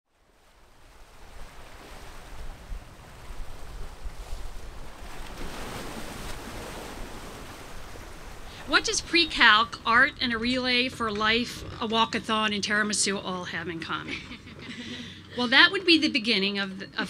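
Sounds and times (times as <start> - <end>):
ocean waves breaking on rocks: 0.1 - 13.2.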